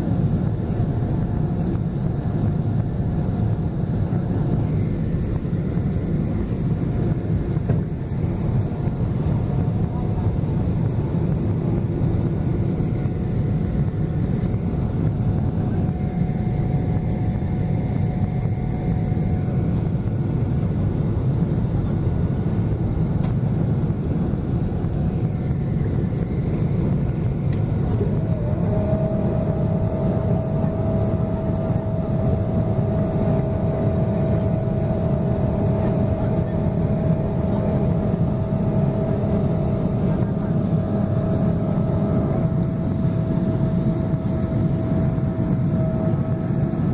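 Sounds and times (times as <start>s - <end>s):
faint steady whine: 0.0s - 46.9s
jet engine rumble: 0.0s - 46.9s.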